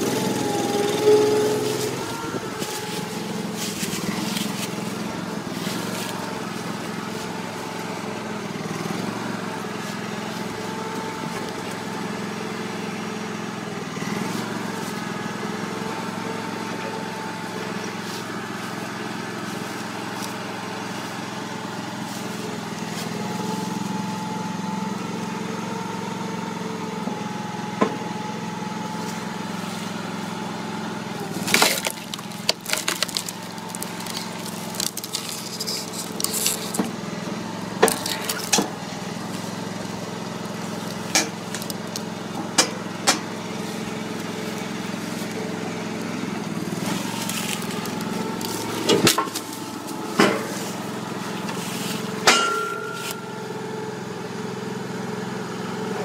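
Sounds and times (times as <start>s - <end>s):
chainsaw cutting logs: 0.0s - 26.1s, 29.0s - 53.6s
wooden blocks clacking on pile: 31.4s - 36.8s.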